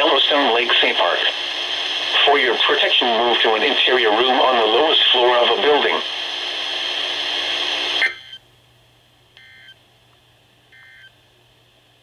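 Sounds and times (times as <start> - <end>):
voice from radio speaker: 0.0 - 6.1
static hiss: 0.0 - 8.4.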